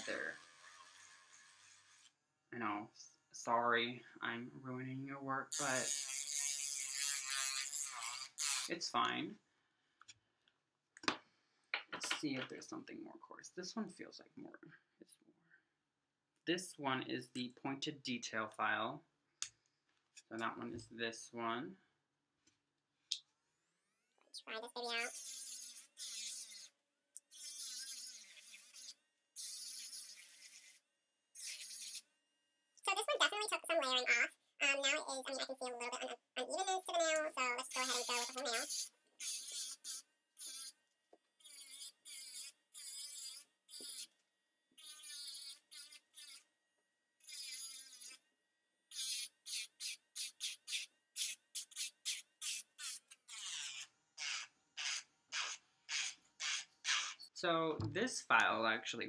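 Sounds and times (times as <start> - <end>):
electric nail file grinding: 5.8 - 8.7, 25.0 - 26.7, 27.3 - 30.8, 31.4 - 32.0, 44.8 - 46.4, 47.2 - 48.2, 49.0 - 57.3.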